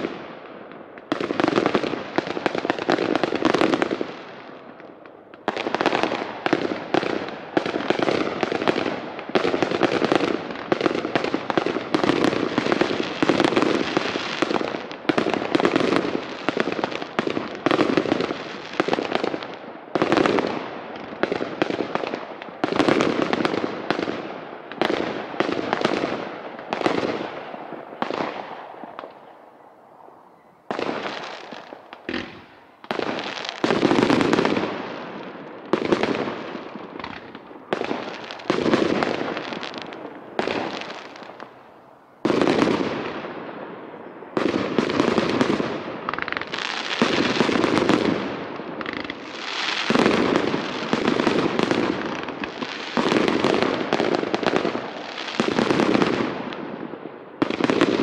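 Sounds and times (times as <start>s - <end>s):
firework shells bursting: 30.7s - 41.7s.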